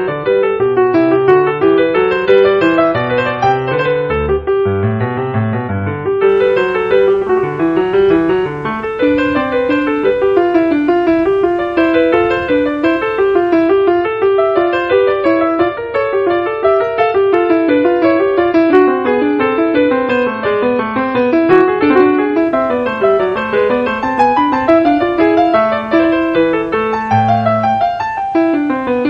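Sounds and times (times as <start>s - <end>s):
piano music quick notes: 0.0s - 29.0s.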